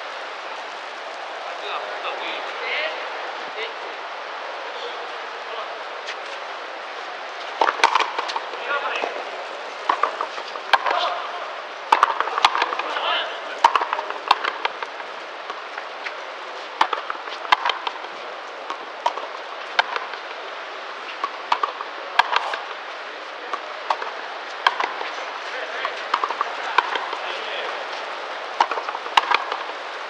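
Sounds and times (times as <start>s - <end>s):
ball cracking off rackets and wall: 7.5s - 9.2s, 9.8s - 11.2s, 11.9s - 13.0s, 13.6s - 16.2s, 16.8s - 18.1s, 18.7s - 20.2s, 21.1s - 22.7s, 23.5s - 29.8s.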